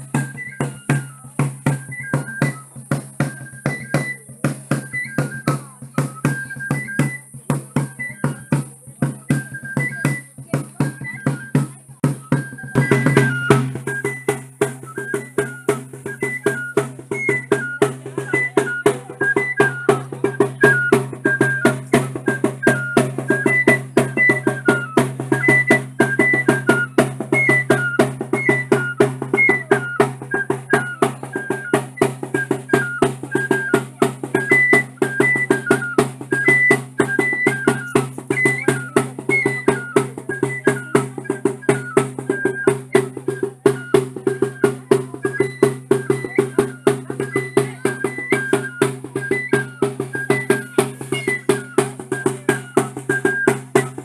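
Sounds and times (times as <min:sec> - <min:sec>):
high piped flute melody: 0:00.0 - 0:54.0
quick steady drum beats: 0:00.0 - 0:54.0.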